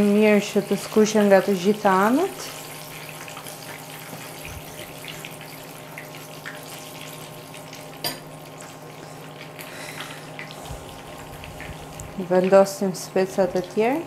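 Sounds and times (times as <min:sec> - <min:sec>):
peppers sizzling in oil: 0:00.0 - 0:14.0
oil popping and crackling: 0:00.6 - 0:12.7
steady low hum: 0:07.0 - 0:14.0.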